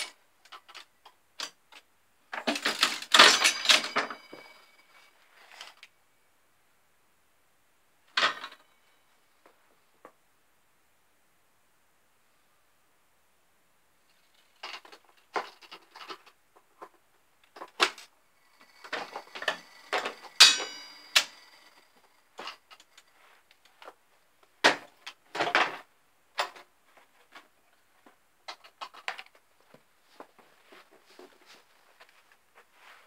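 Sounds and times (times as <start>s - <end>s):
slot machine clicks and clunks: 2.7s - 4.6s
ringing metallic clang: 3.2s - 5.0s, 18.7s - 21.9s.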